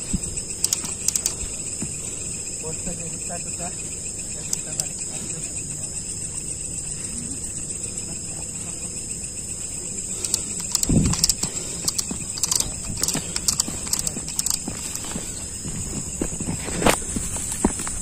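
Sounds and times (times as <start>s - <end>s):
crickets chirring: 0.0s - 18.0s
footsteps in dry grass: 10.7s - 18.0s.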